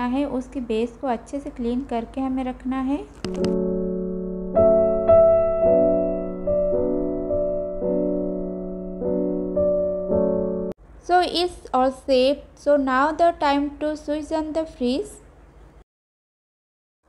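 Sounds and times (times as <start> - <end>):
piano chords: 3.3 - 10.8.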